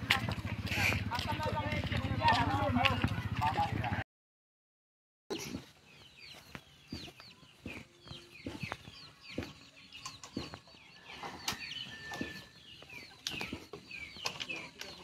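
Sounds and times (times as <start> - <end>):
chickens clucking: 5.3 - 15.0.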